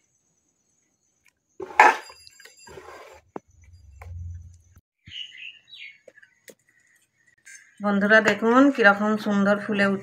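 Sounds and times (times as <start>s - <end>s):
small birds chirping: 4.6s - 8.2s.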